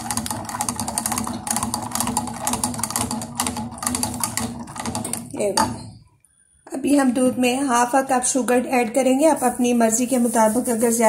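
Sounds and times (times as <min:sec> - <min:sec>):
whisk clicking against saucepan: 0:00.0 - 0:05.9.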